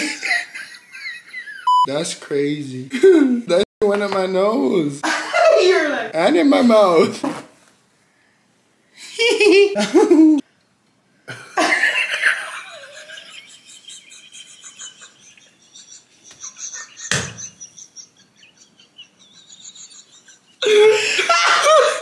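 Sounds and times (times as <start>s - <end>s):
people laughing: 11.3s - 22.0s.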